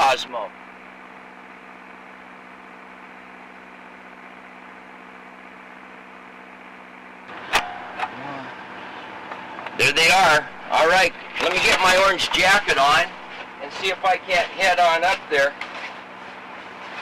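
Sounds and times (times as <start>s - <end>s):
sharp click: 7.5s - 8.2s.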